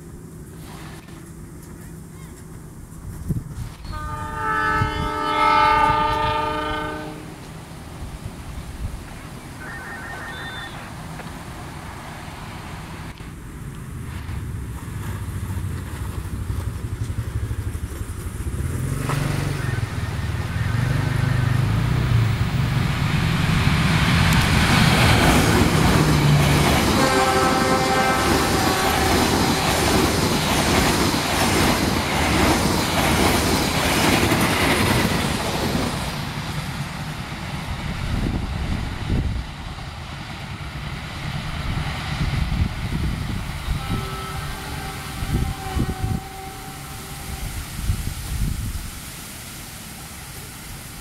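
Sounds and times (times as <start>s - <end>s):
locomotive engine hum: 0.0s - 49.1s
train horn: 3.8s - 7.4s, 9.6s - 10.9s, 26.2s - 30.0s, 43.6s - 47.9s
train wheels clattering: 23.8s - 38.0s.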